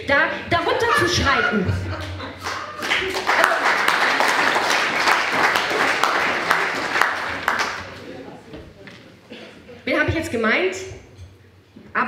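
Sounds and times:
audience applauding: 2.4s - 8.2s.

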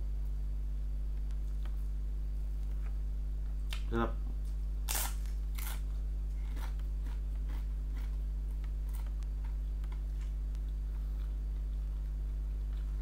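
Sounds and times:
steady low hum: 0.0s - 13.0s
chewing with small crunches: 3.7s - 13.0s.

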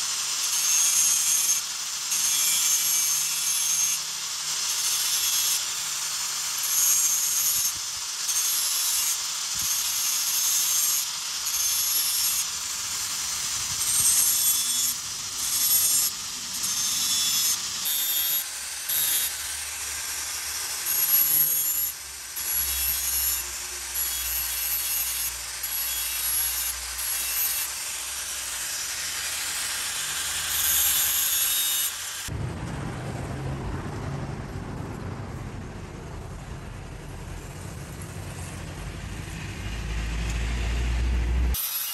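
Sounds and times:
angle grinder grinding steel: 0.0s - 32.3s, 41.4s - 41.9s.

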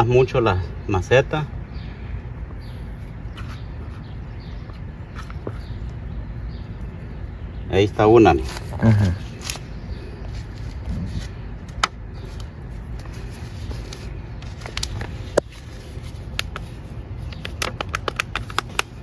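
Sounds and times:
plastic pot clicks: 17.3s - 19.0s.

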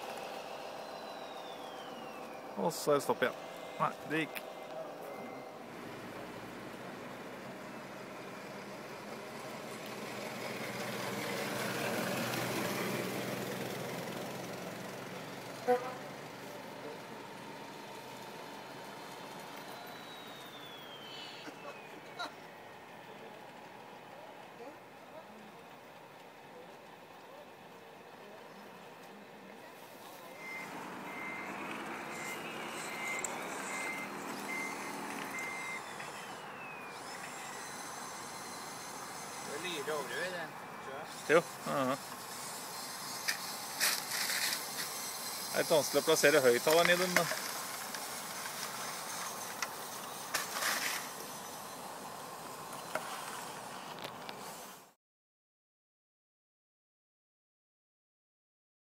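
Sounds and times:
high reversing beeps: 0.0s - 6.8s, 17.6s - 22.4s, 30.2s - 47.2s
falling whine: 0.0s - 24.7s, 30.0s - 54.8s
engine-like hum from speaker: 0.0s - 54.9s
vehicle running: 0.0s - 54.9s
short sharp beep: 3.7s - 5.6s, 32.1s - 35.9s.

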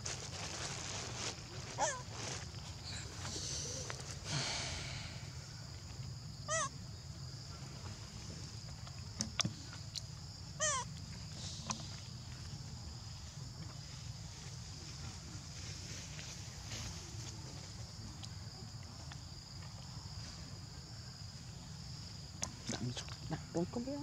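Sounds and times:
macaque squeaky calls: 6.5s - 6.7s, 10.6s - 10.9s.

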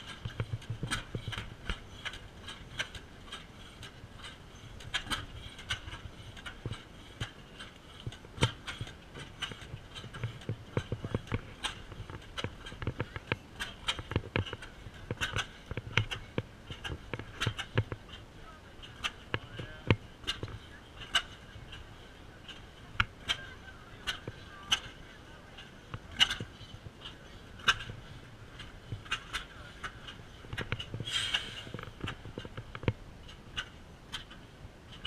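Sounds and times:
faint crowd chatter: 18.1s - 32.0s.

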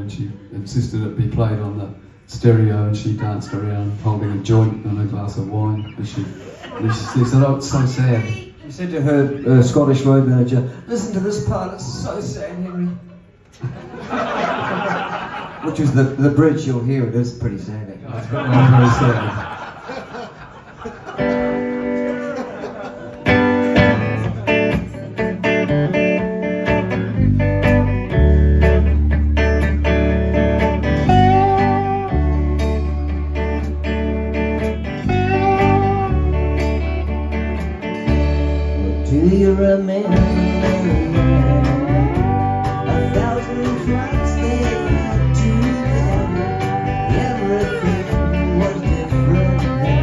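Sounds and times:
drums: 20.6s - 50.0s
electric guitars playing: 21.0s - 50.0s
deep bass notes: 23.3s - 50.0s
man singing: 38.8s - 50.0s.

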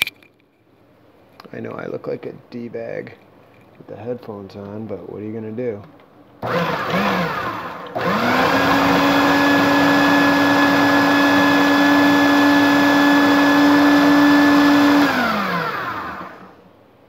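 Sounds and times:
food processor motor whirring: 6.4s - 16.6s.

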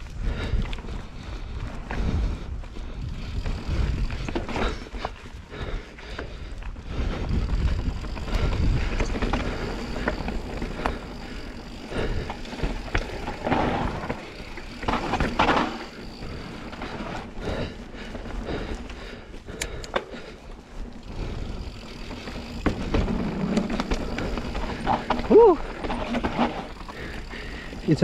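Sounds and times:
wind rumble on microphone: 0.0s - 5.2s, 6.2s - 10.8s
bike rattling over bumps: 0.0s - 28.0s
bike tyres on dirt: 0.0s - 28.0s.

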